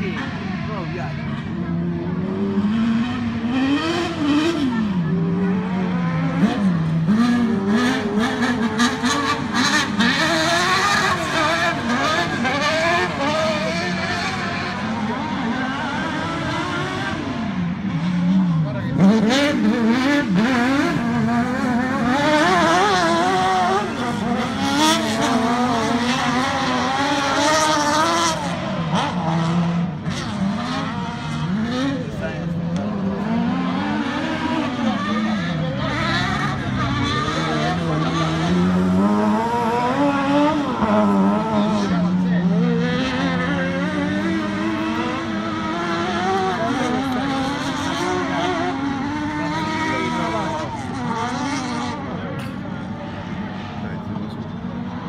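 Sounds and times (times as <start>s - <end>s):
race car engines revving: 0.0s - 55.0s.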